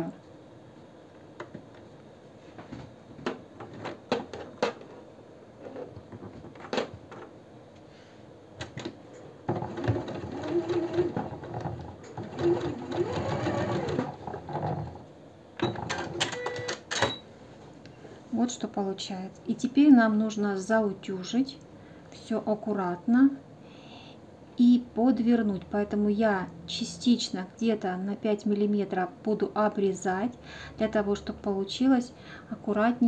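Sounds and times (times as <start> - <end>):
sewing machine stitching: 9.5 - 15.0.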